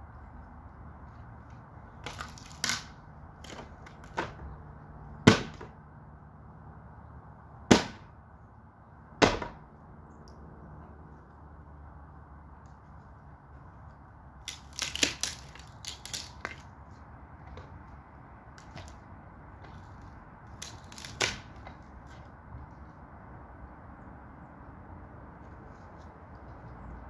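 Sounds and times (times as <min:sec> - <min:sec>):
wooden boards cracking and snapping: 0:02.0 - 0:04.4, 0:14.4 - 0:16.7, 0:20.5 - 0:21.8.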